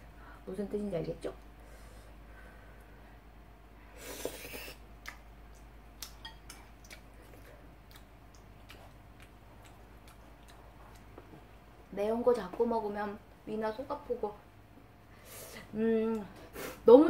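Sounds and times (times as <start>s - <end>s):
close chewing mouth sounds: 4.4s - 11.6s.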